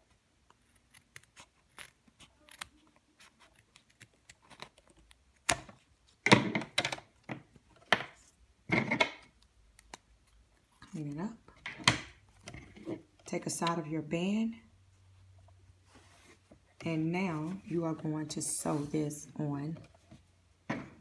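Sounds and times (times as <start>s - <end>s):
scissors snipping thread: 0.5s - 5.7s.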